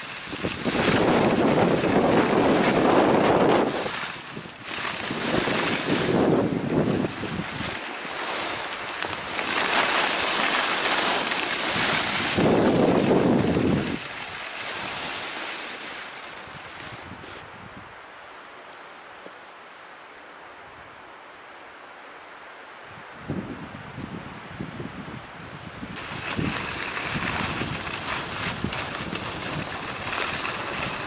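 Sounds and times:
wind buffeting microphone: 0.0 - 10.5, 11.5 - 15.1, 22.9 - 31.0
skis sliding on snow: 0.0 - 17.5, 26.0 - 31.0.

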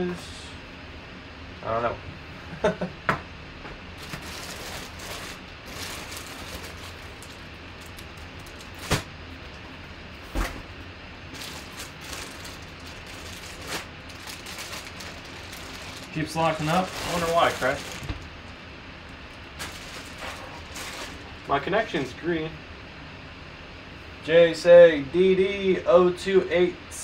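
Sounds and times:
plastic bag crinkling: 4.0 - 9.1, 11.3 - 18.6, 19.3 - 21.6.

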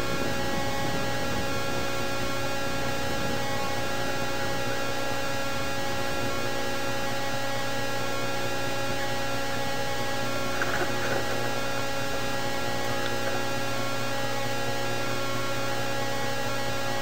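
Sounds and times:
electrical hum: 0.0 - 17.0
static hiss: 0.0 - 17.0.

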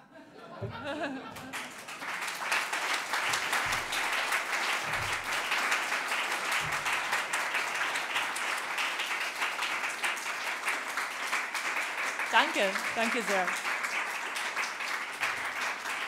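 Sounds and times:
audience applauding: 1.1 - 16.0.

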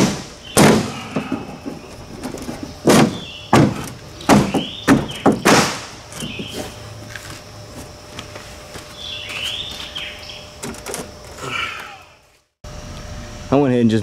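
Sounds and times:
metal sheet thumping on boat hull: 0.0 - 6.5.

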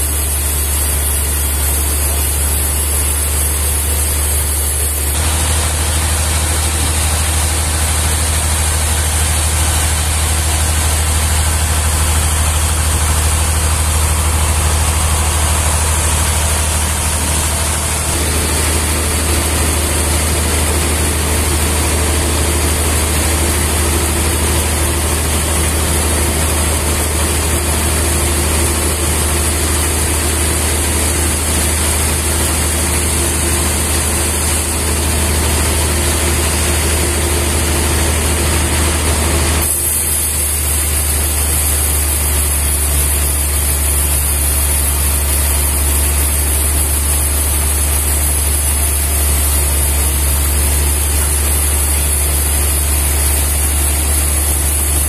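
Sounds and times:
sawmill low hum: 0.0 - 55.0.

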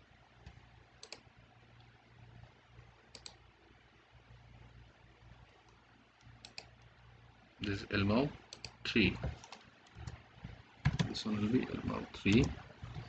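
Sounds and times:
faint room hiss: 0.0 - 13.0.

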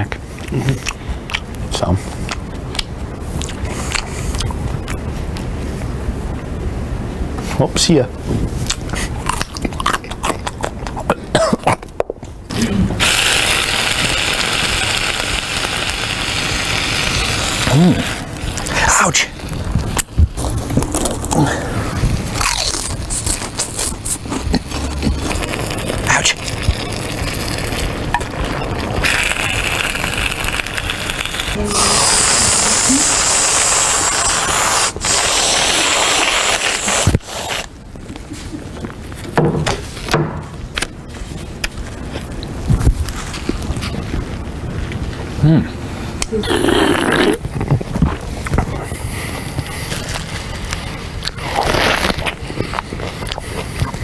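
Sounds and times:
steady hiss: 12.5 - 38.6
crunching bites into carrot: 13.0 - 28.3.

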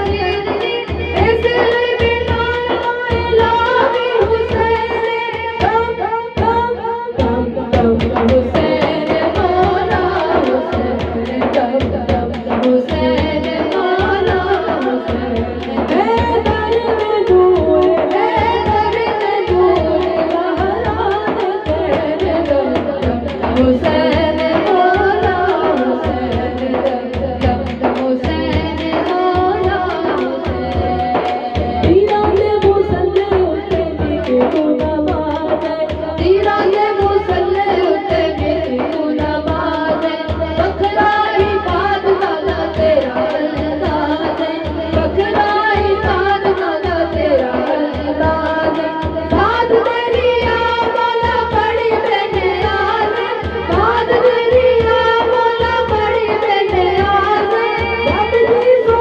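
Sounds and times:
hand drum beat: 0.0 - 59.0
woman singing devotional song: 0.0 - 59.0.

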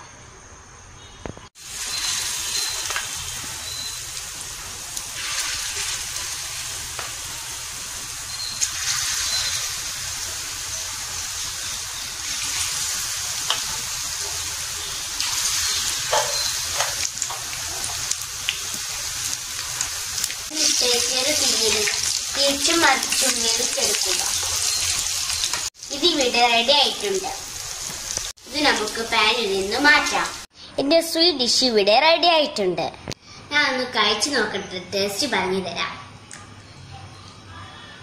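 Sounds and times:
batter sizzling in hot oil: 1.6 - 30.5.

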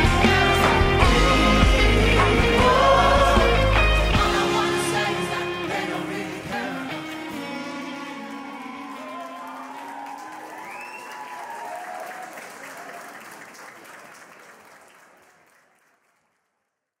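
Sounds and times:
music: 0.0 - 9.6
audience applauding: 0.0 - 16.5.

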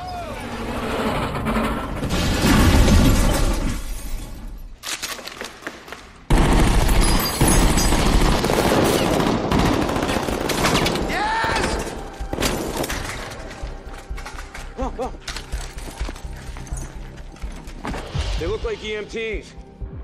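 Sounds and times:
scattered gunshots: 6.3 - 11.7.

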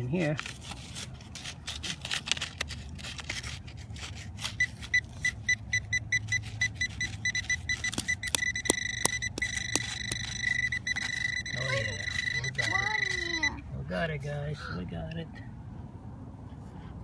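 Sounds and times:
pinpointer beeping: 4.6 - 13.6.

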